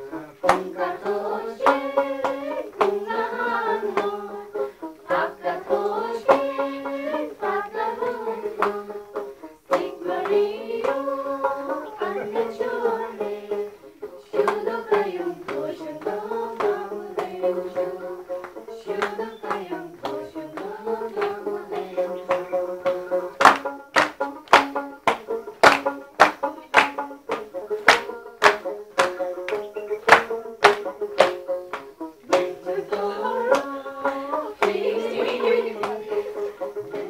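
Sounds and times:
plucked string instrument: 0.0 - 37.0
voices singing a folk melody: 0.0 - 37.0
sharp percussive beats: 22.9 - 33.7.

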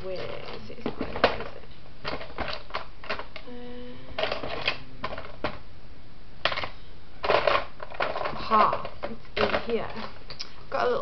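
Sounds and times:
plastic items clattering: 0.0 - 3.4, 4.2 - 5.6, 6.4 - 10.3
low hum: 0.8 - 9.1.

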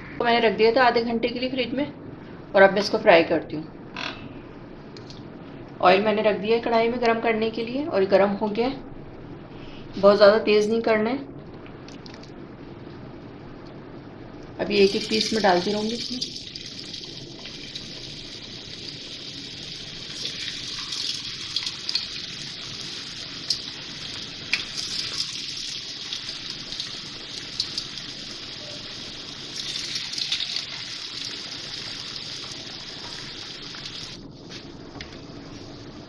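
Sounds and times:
food deep-frying in oil: 14.7 - 34.2.

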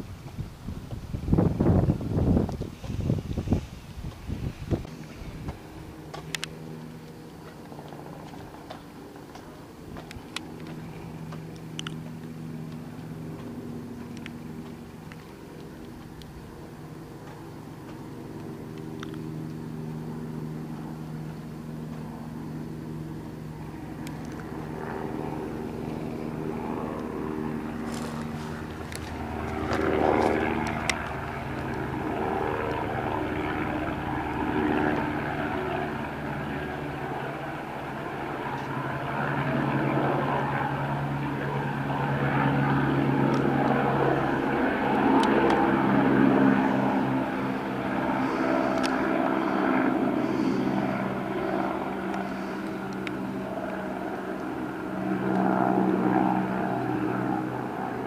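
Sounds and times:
aircraft engine drone overhead: 0.0 - 58.0.

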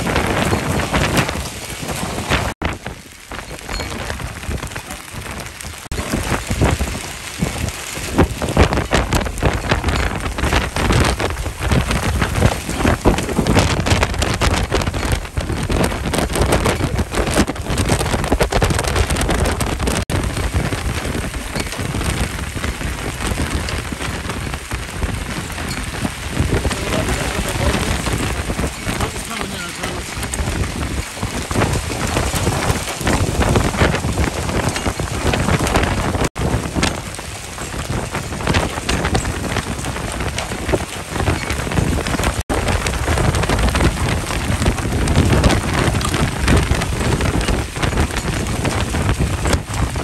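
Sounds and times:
gusting wind: 0.0 - 50.0
hail and rain pelting ground: 0.0 - 50.0.

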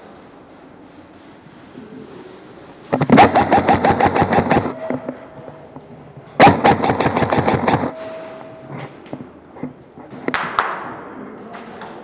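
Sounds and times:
airsoft rifle full-auto bursts: 3.0 - 4.8, 6.4 - 7.9.

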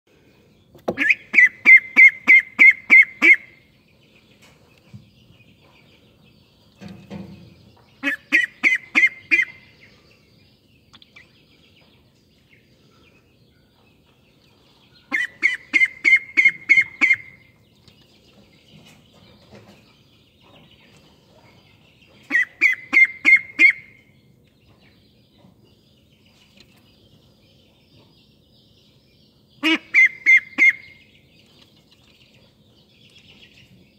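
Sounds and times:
duckling calling: 0.9 - 3.6, 8.0 - 9.9, 15.1 - 17.6, 22.3 - 24.1, 29.6 - 31.0.

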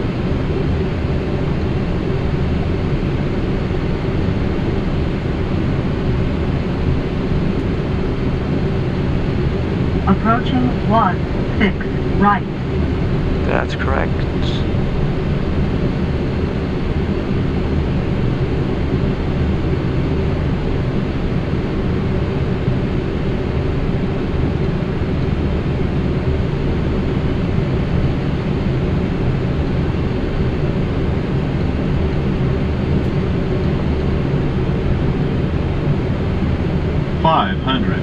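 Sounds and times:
airliner engine rumble: 0.0 - 38.0.

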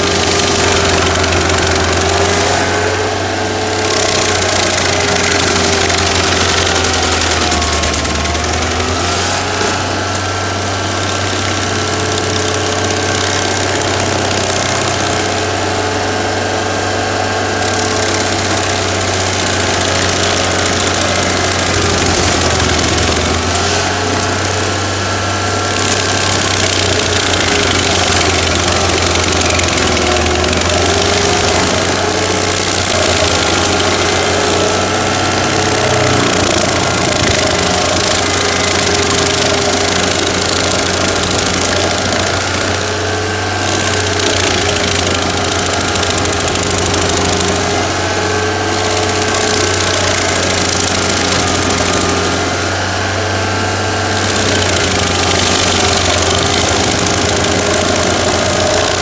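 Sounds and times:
cutter wheel grinding wood: 0.0 - 59.0
stump grinder engine running: 0.0 - 59.0.

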